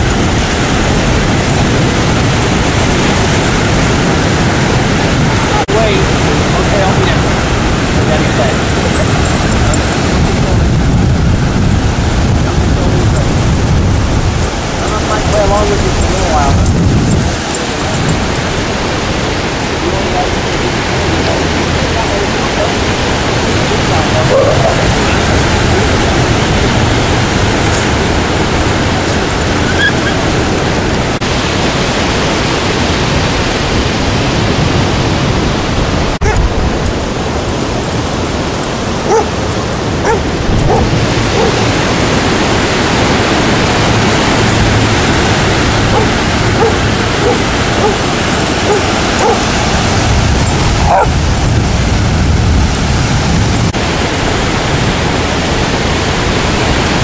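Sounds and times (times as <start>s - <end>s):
surf rushing: 0.0s - 57.0s
wind: 0.0s - 57.0s
dogs barking and yipping: 8.1s - 10.3s, 24.1s - 26.2s, 27.4s - 31.0s, 36.2s - 36.6s, 37.4s - 42.1s, 44.4s - 51.6s.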